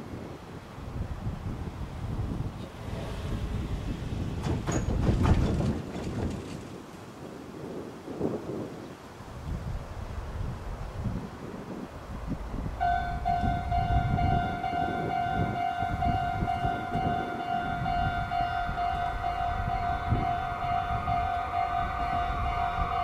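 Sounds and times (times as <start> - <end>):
wind buffeting microphone: 0.0 - 23.0
rushing noise: 12.0 - 23.0
level-crossing warning bell: 12.8 - 23.0.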